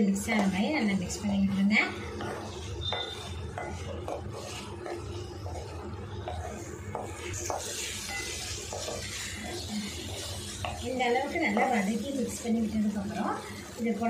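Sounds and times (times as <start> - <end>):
spoon scraping metal pan: 2.1 - 12.3.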